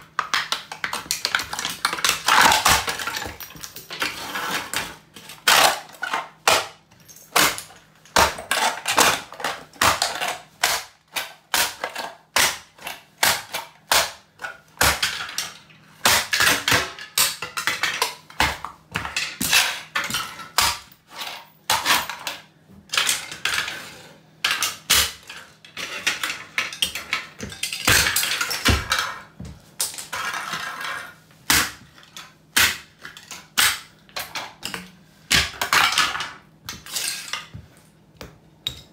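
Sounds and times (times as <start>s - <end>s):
plastic pieces clattering on tiles: 0.0s - 31.2s, 31.9s - 37.6s
plastic toy cracking under boots: 0.1s - 4.1s
boots stomping on tile floor: 28.7s - 29.7s.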